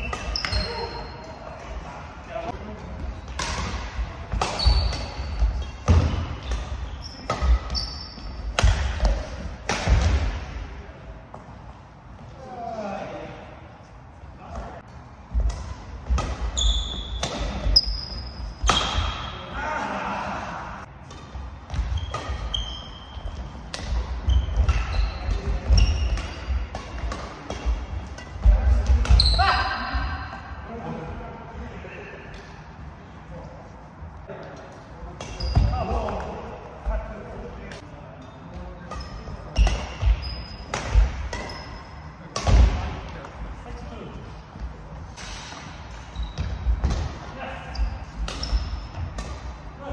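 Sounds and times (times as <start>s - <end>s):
shoes squeaking on court: 0.0s - 1.3s, 4.3s - 9.2s, 16.4s - 19.2s, 21.1s - 27.2s, 35.2s - 36.2s, 38.2s - 42.1s, 45.6s - 47.0s, 47.7s - 49.5s
badminton rackets hitting shuttlecock: 3.3s - 10.4s, 15.3s - 19.3s, 23.2s - 29.2s, 38.9s - 43.4s, 48.2s - 49.7s.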